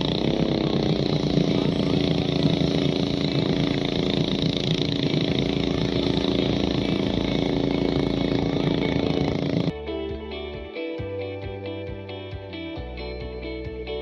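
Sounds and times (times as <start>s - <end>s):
water and air wash: 0.0s - 9.6s
motorboat engine drone: 0.0s - 9.8s.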